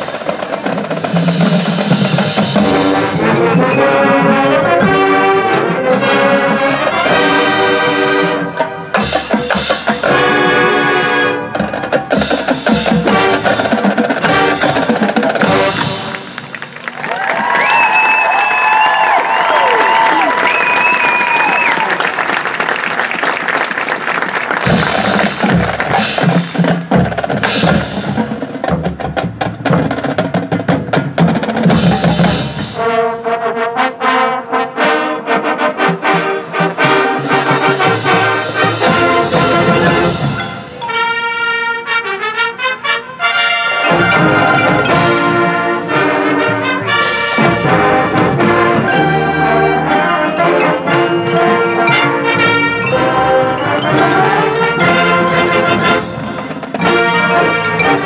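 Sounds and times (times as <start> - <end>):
brass chords: 0.0 - 16.6, 24.5 - 58.0
marching band drums: 0.0 - 18.8, 24.0 - 58.0.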